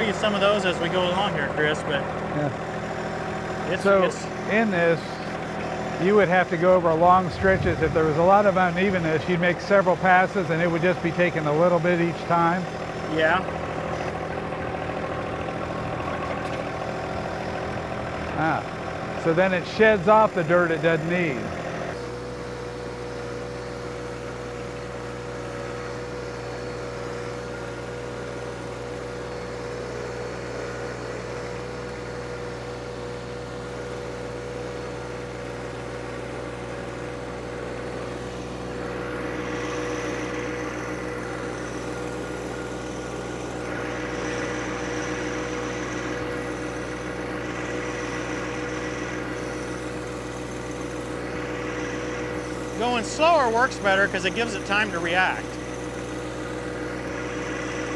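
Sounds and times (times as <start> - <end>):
tractor diesel engine running: 0.0 - 57.9
faint high whine: 3.7 - 11.4.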